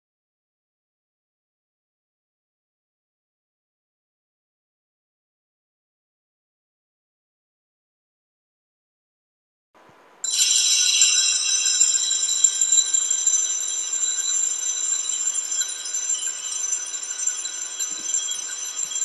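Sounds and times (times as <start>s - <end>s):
small bells jingling: 10.2s - 19.0s.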